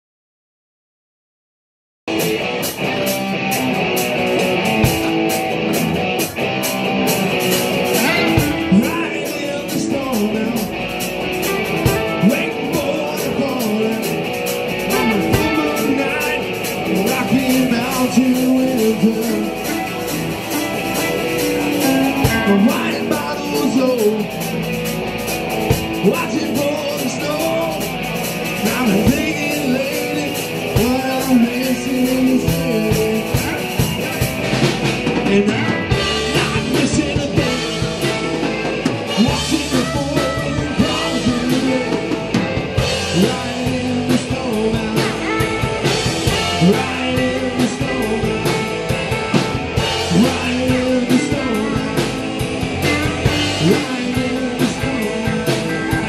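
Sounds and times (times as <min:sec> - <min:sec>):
bass guitar: 0:02.1 - 0:56.0
drum kit: 0:02.1 - 0:56.0
electric guitars: 0:02.1 - 0:56.0
person singing: 0:07.5 - 0:24.6, 0:25.9 - 0:56.0.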